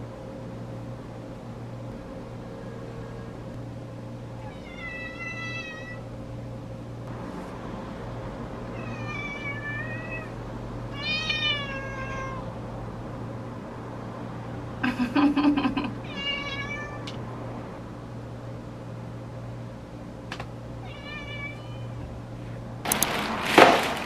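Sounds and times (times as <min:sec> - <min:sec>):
steady low hum: 0:00.0 - 0:24.0
cat meowing: 0:04.4 - 0:06.0, 0:08.7 - 0:12.5, 0:16.0 - 0:17.2, 0:20.8 - 0:22.0.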